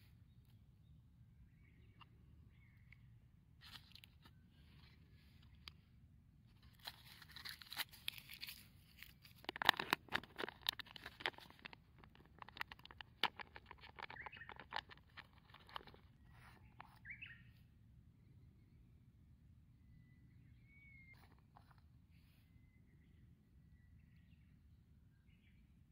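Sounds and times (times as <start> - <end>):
bird chirp: 0.0 - 5.7, 9.6 - 18.9, 19.8 - 25.9
packaging crackling and rustling: 6.6 - 16.9.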